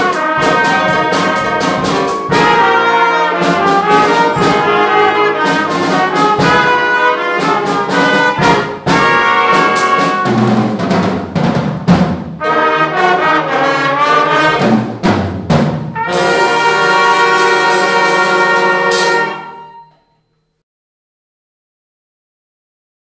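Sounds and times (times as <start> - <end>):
cymbal crash: 0.0 - 3.0
brass melody: 0.0 - 11.4, 12.2 - 20.1
drum hits: 0.0 - 12.6, 14.6 - 19.2
school band playing: 0.0 - 20.1.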